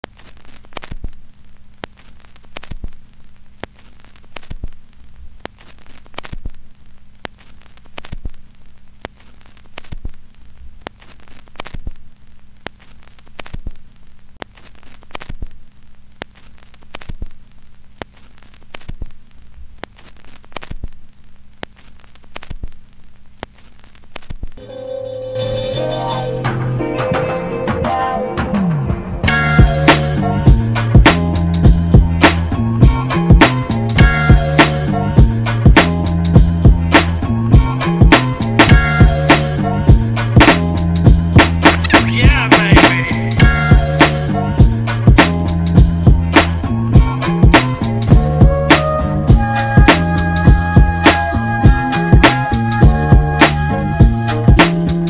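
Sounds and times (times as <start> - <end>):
static crackle with pops: 0.0 - 24.6, 29.0 - 55.0.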